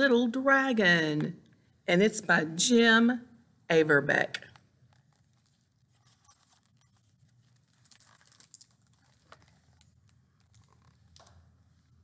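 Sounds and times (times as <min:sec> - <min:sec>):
book pages crinkling and rustling: 0:04.5 - 0:12.0.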